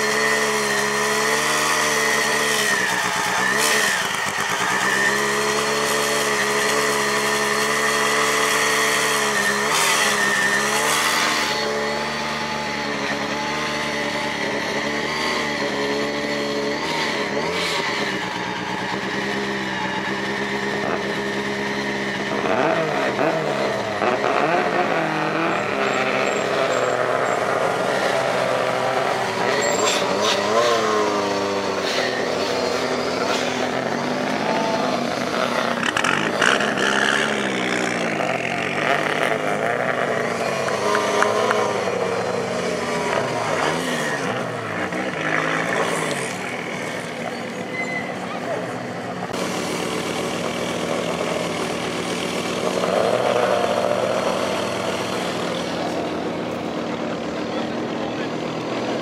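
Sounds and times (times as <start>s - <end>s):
rally car engines revving: 0.0s - 59.0s
rally car engine idling: 25.3s - 59.0s.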